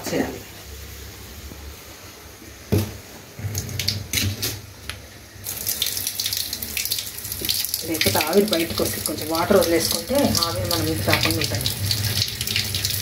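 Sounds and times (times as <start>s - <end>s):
water gushing into sink: 3.4s - 4.5s, 5.4s - 13.0s.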